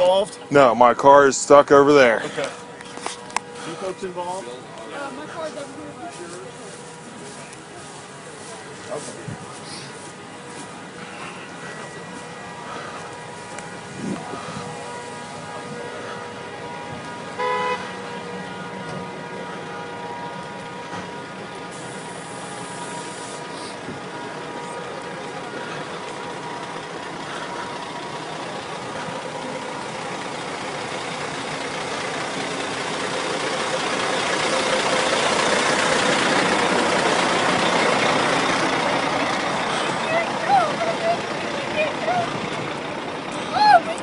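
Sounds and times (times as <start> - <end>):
traffic and engines rushing: 0.0 - 44.0
vehicle horn continuous tone: 0.0 - 44.0.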